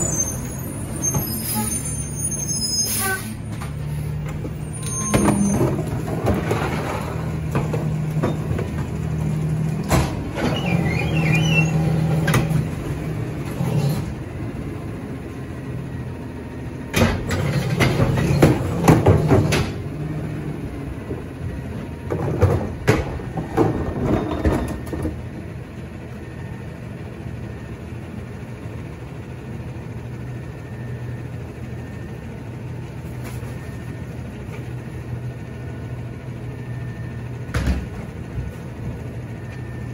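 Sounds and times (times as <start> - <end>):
garbage truck engine running: 0.0 - 39.9
trash carts clattering against hopper: 3.3 - 14.2, 16.8 - 25.6, 37.4 - 39.9.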